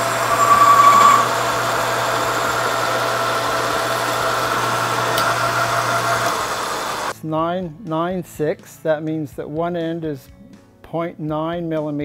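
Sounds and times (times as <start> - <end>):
high whine of cutting tool: 0.0 - 7.1
lathe motor hum: 0.0 - 7.1.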